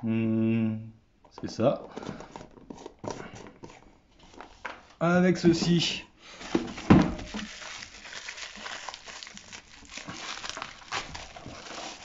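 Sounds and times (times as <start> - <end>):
plastic packaging crinkling: 6.7 - 12.0.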